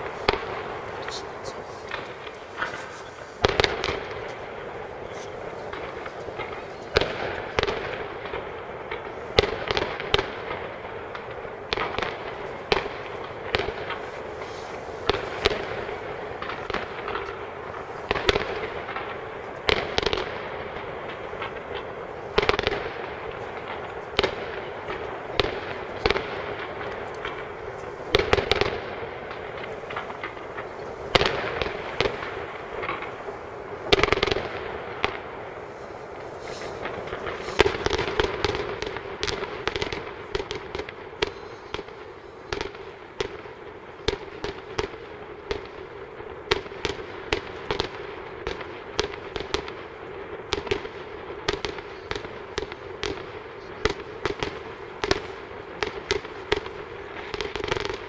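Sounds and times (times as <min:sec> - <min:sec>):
firework shells bursting: 0:00.0 - 0:10.2
steady background hiss: 0:00.0 - 0:58.0.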